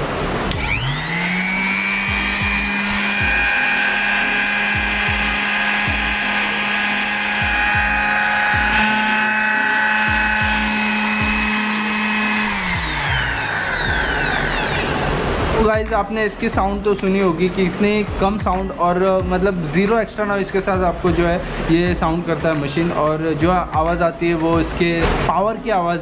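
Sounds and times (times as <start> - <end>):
orbital sander motor whine: 0.5 - 15.5.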